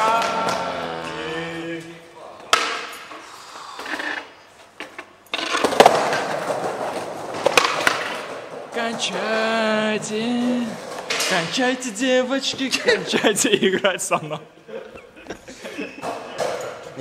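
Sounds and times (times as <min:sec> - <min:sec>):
skateboard rolling: 0:04.9 - 0:09.5
skateboard knocks and slaps: 0:05.4 - 0:09.1
person calling out: 0:08.8 - 0:12.7.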